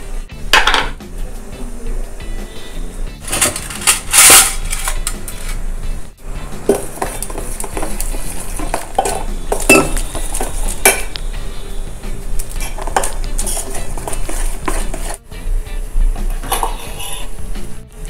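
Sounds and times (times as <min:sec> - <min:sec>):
steel bowl and spoon clinking: 0:06.7 - 0:11.2, 0:12.4 - 0:15.2, 0:16.4 - 0:17.4.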